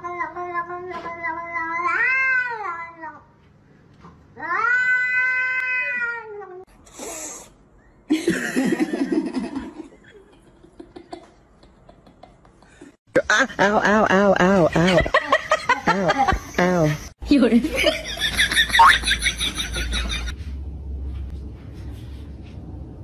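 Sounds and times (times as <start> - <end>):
cats yowling: 4.4 - 6.6.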